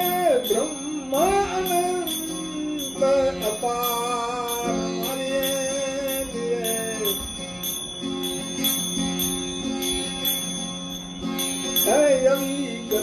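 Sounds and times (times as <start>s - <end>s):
man singing: 0.0s - 7.9s, 11.4s - 13.0s
hand cymbals beat: 0.0s - 13.0s
harmonium drone: 0.0s - 13.0s.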